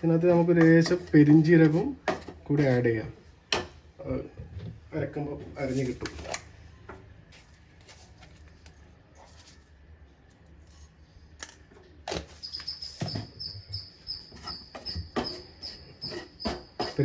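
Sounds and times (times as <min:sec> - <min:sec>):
high pulsing chirp: 0:12.4 - 0:16.6
spoon scraping a pan: 0:14.2 - 0:17.0.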